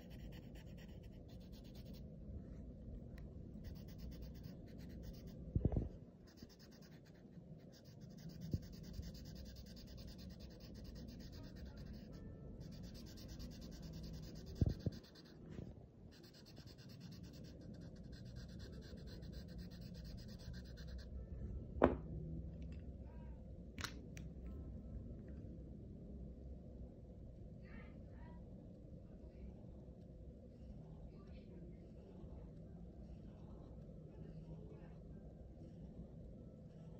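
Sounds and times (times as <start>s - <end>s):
marker scratching on paper: 0.0s - 2.0s, 3.6s - 5.4s, 6.3s - 21.1s
knocks: 21.8s - 22.1s.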